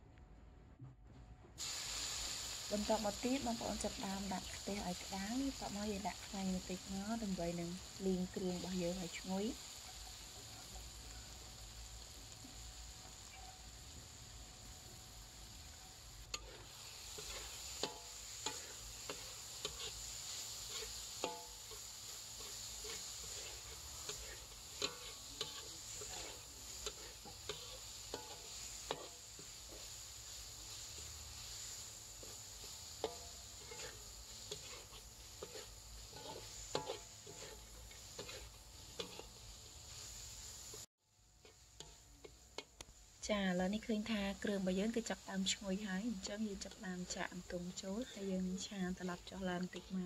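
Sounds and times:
faint steady hiss: 0:01.4 - 0:50.0
faint sizzle: 0:01.6 - 0:50.0
metal spatula scraping a wok: 0:08.3 - 0:12.2, 0:12.9 - 0:13.8, 0:15.7 - 0:42.7, 0:46.1 - 0:50.0.

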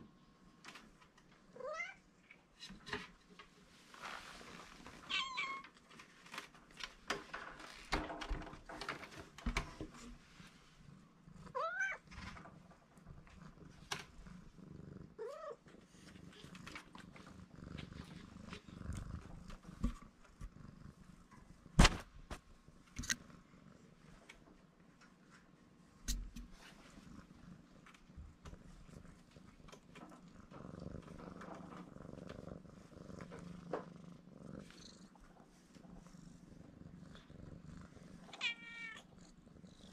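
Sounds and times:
kitten purring: 0:08.0 - 0:21.8, 0:26.0 - 0:39.9.

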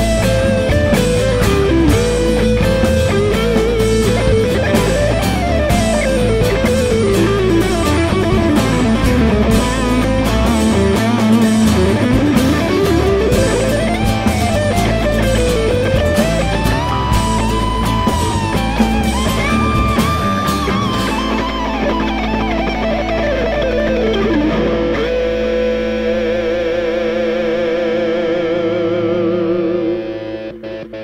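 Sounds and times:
steady drum beat: 0:00.0 - 0:24.6
strummed acoustic guitar: 0:00.0 - 0:27.1
electric bass: 0:00.0 - 0:31.0
lead electric guitar melody: 0:00.0 - 0:31.0.

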